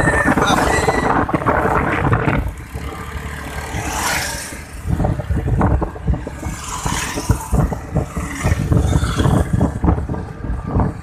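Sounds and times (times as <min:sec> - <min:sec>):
wind buffeting microphone: 0:00.0 - 0:02.9, 0:03.7 - 0:11.0
motorcycle engine and road noise: 0:00.0 - 0:11.0.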